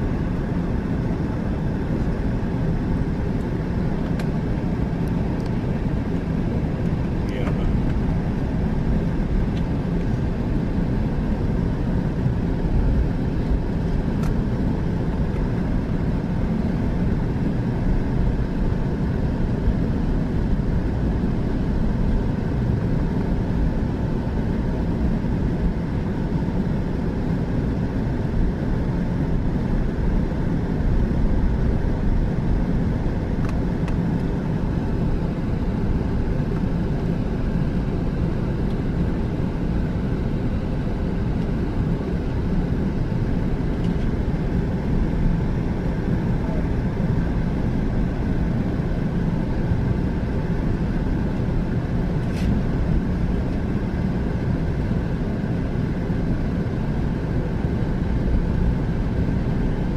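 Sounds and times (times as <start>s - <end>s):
aircraft engines rumbling: 0.0s - 59.9s.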